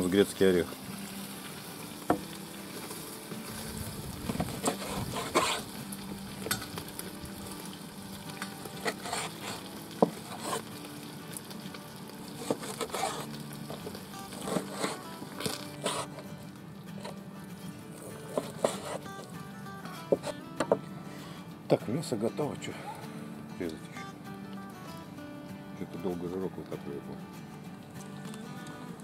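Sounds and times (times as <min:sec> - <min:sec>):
fat sizzling: 0:00.0 - 0:21.5
knife cutting meat on board: 0:04.3 - 0:05.7, 0:08.8 - 0:10.7, 0:12.4 - 0:13.3, 0:14.3 - 0:16.2, 0:18.1 - 0:19.1, 0:20.1 - 0:20.8.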